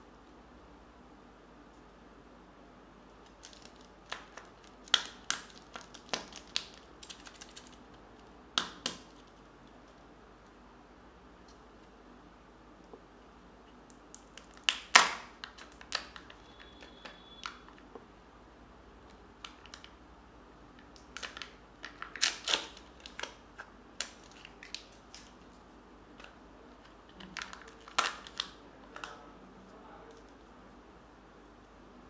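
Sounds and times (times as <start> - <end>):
plastic egg snapping open: 3.2 - 7.8, 8.6 - 9.2
foil seal crackling: 21.1 - 23.4.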